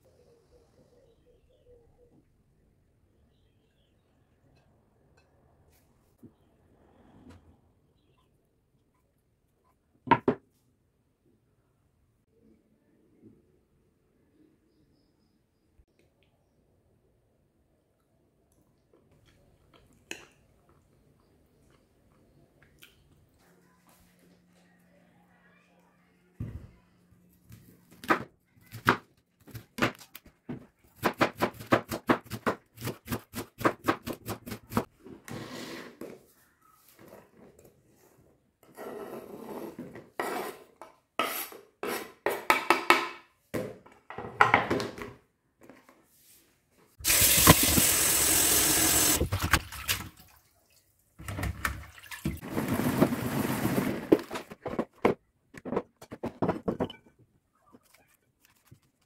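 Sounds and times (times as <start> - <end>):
water running: 47.0 - 50.9.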